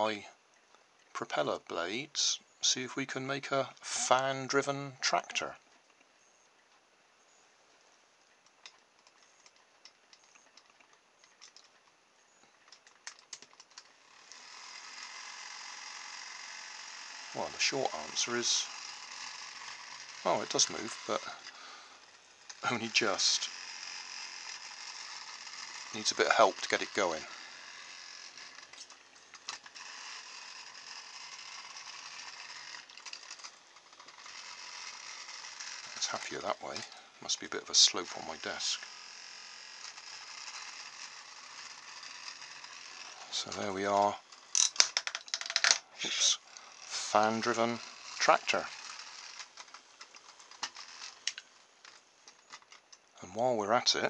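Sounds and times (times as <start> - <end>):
small electric motor running: 3.5 - 5.6, 12.3 - 53.2
small clicks and taps: 8.3 - 13.9.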